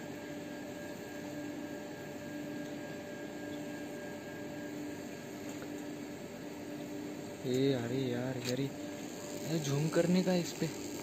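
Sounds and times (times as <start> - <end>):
mechanical hum: 0.0 - 11.0
even hiss: 8.5 - 11.0.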